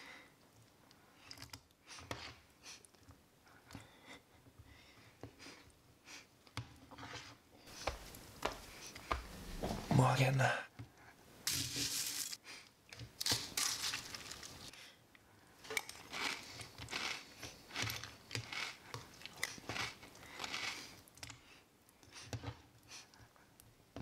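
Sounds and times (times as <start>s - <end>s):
crinkling: 11.5s - 14.7s
food crunching: 15.7s - 21.3s.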